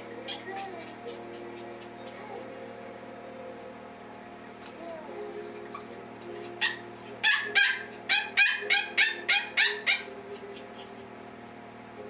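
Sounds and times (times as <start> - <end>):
puppy yapping: 0.2 - 2.5, 5.7 - 11.0.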